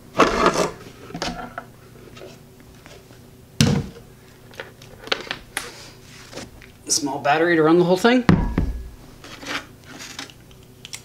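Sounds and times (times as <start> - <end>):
wooden box thump on floor: 3.6 - 4.0, 8.3 - 8.9.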